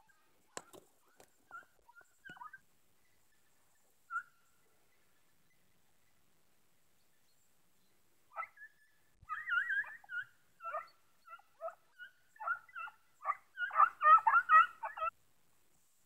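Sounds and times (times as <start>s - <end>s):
hounds baying: 1.1s - 2.6s, 4.1s - 4.5s, 8.3s - 15.1s.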